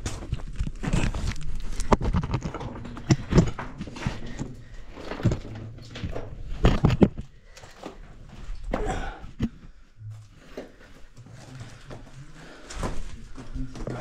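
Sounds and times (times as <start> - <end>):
shifting rocks knocking: 0.0 - 9.6.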